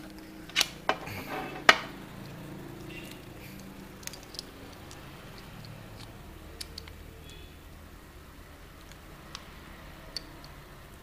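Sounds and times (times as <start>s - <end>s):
steady low hum: 0.0s - 11.0s
small sharp clicks: 2.8s - 7.5s.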